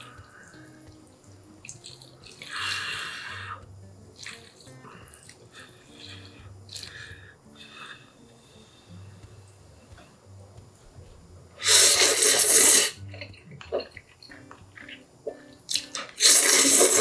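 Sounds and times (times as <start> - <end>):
person slurping noodles: 11.6 - 13.9, 16.2 - 17.0.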